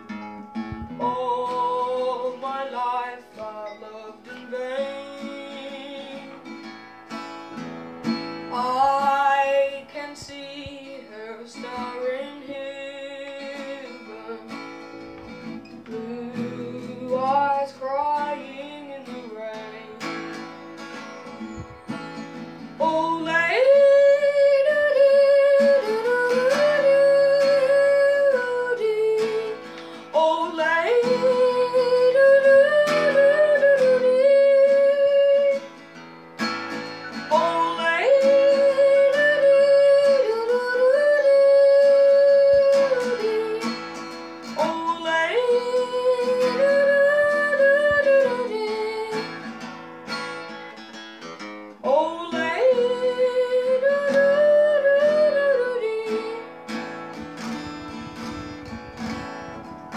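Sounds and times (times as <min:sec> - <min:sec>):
acoustic guitar strumming: 0:00.0 - 0:59.9
boy singing: 0:00.7 - 0:06.5, 0:08.5 - 0:20.4, 0:22.8 - 0:35.7, 0:37.1 - 0:49.5, 0:51.8 - 0:56.6.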